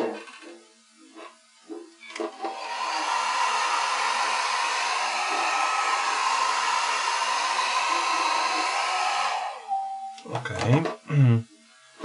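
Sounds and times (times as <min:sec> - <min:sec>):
hair dryer blowing: 0:02.2 - 0:09.8.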